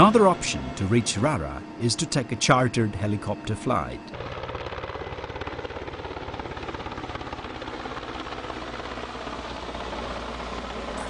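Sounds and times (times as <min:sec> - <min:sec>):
helicopter engine rushing: 0:00.0 - 0:11.0
helicopter rotor chop: 0:00.0 - 0:11.0.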